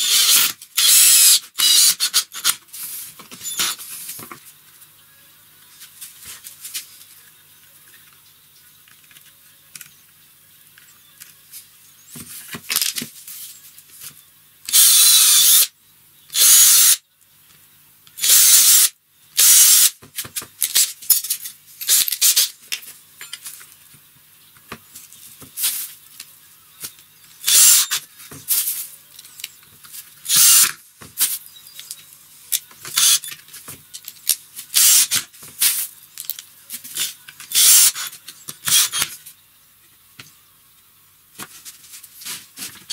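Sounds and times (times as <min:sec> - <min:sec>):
cordless drill boring wood: 0:00.0 - 0:02.5, 0:14.7 - 0:15.7, 0:16.3 - 0:17.0, 0:18.2 - 0:19.9, 0:27.4 - 0:28.0, 0:30.3 - 0:30.7, 0:33.0 - 0:33.2, 0:34.8 - 0:35.2, 0:37.5 - 0:39.0
drill driving screws: 0:00.0 - 0:02.6, 0:14.7 - 0:15.7, 0:16.3 - 0:17.0, 0:18.2 - 0:20.0, 0:21.9 - 0:22.5, 0:27.4 - 0:28.0, 0:30.3 - 0:30.8, 0:32.9 - 0:33.3, 0:34.7 - 0:35.2, 0:37.5 - 0:39.1.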